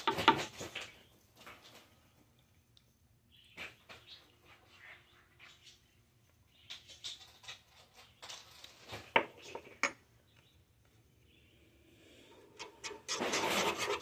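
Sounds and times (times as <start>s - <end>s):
spoon clinking and scraping a pan: 12.6s - 14.0s.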